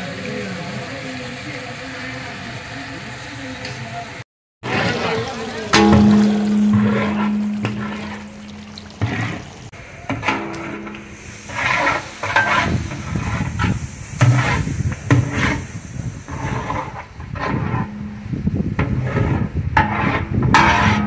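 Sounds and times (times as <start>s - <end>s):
masala sizzling: 0.0s - 21.0s
metal ladle scraping in pot: 4.7s - 21.0s.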